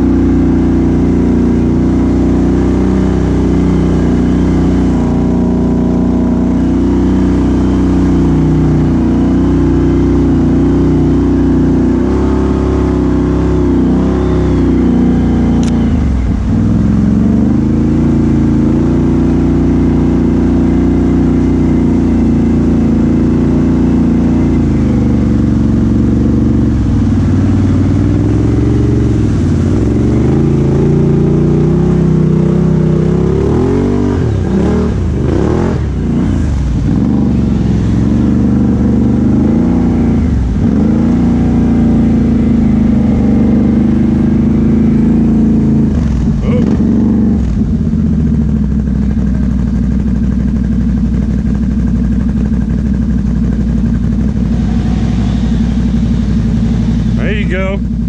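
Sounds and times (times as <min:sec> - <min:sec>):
atv engine revving: 0:00.0 - 0:58.0.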